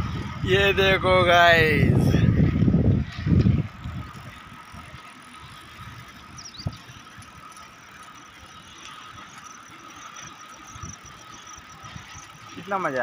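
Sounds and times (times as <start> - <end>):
wind rumble on microphone: 0.0 - 7.6, 10.2 - 12.7
bicycle riding on paved road: 0.0 - 13.0.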